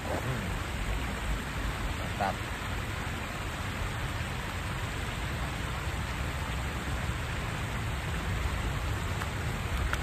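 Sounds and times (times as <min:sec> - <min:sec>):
even hiss: 0:00.0 - 0:06.7.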